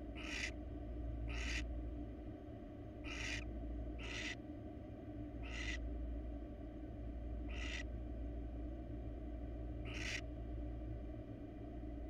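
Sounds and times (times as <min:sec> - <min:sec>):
steady low hum: 0:00.0 - 0:12.0
owl rasping hiss calls: 0:00.1 - 0:00.6, 0:01.3 - 0:01.7, 0:03.0 - 0:04.4, 0:05.4 - 0:05.8, 0:07.5 - 0:07.9, 0:09.8 - 0:10.2.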